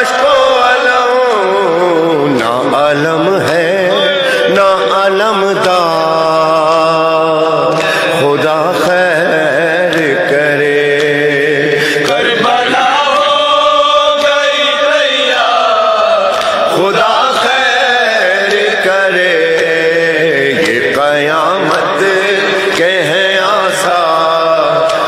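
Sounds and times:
voices chanting: 0:12.0 - 0:20.7.

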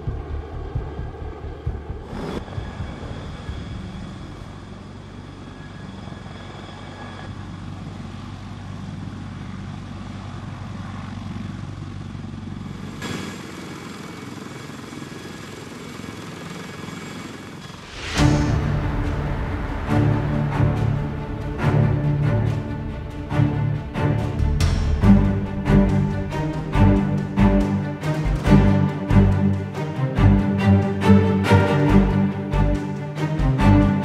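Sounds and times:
helicopter rotor rumble: 0:00.0 - 0:34.0
helicopter turbine whine: 0:00.0 - 0:34.0.

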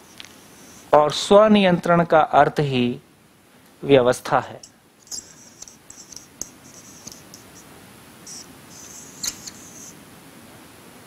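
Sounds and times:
whiteboard marker squeaking: 0:05.0 - 0:07.7, 0:08.3 - 0:10.0.

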